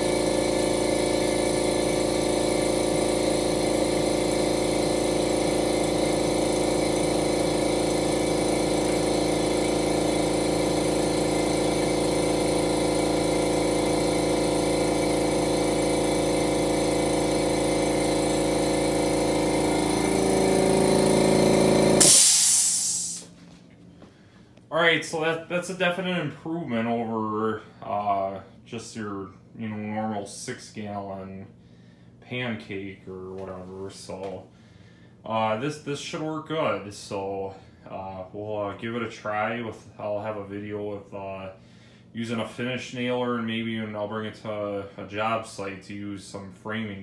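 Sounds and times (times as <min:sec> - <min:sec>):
air hissing: 0:00.0 - 0:23.3
air compressor whining: 0:00.0 - 0:24.7.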